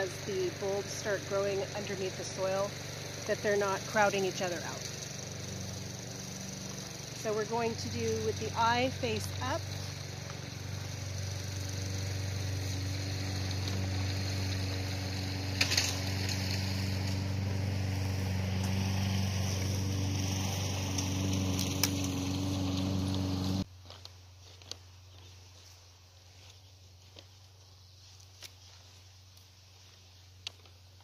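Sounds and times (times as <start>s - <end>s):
engine droning: 0.0s - 23.7s.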